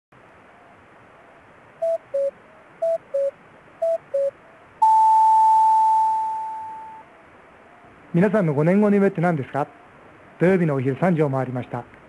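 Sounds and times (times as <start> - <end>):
faint hiss: 0.2 - 12.0
two-note electronic beeps: 1.8 - 7.0
long steady high tone: 1.8 - 7.1.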